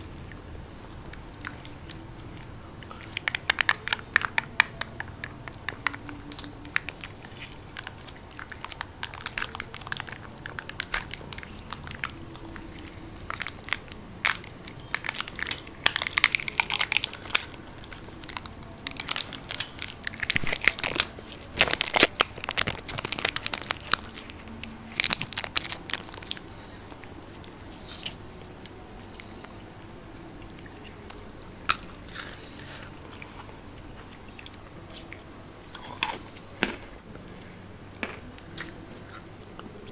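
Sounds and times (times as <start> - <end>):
chewing and crunching: 0.0 - 39.9
wrappers crinkling: 2.9 - 29.5.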